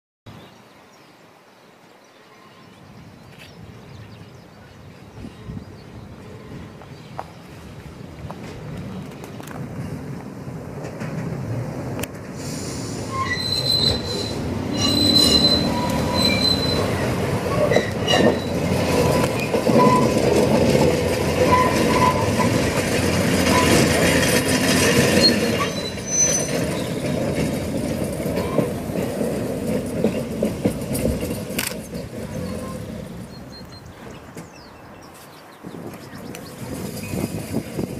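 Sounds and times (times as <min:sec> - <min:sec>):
tram wheels rumbling on rails: 0:03.6 - 0:37.9
wheel squeals: 0:12.8 - 0:28.8, 0:29.9 - 0:33.9, 0:36.0 - 0:37.9.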